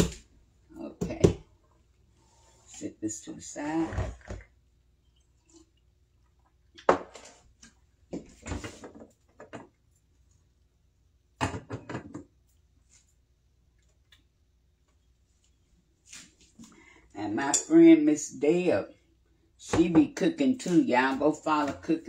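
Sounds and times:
kitchen items knocking and clattering: 0:08.1 - 0:09.8, 0:11.4 - 0:12.4, 0:19.6 - 0:22.0.

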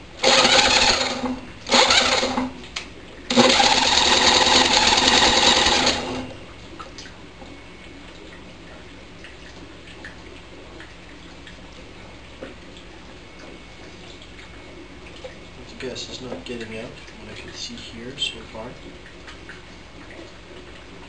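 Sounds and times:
electric drill spinning engine: 0:00.2 - 0:02.5, 0:03.3 - 0:06.3.

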